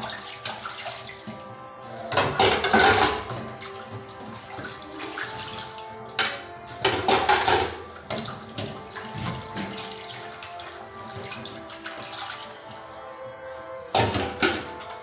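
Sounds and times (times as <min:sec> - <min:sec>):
water splashing: 0:00.0 - 0:15.0
water running into metal sink: 0:02.1 - 0:12.8, 0:13.9 - 0:15.0.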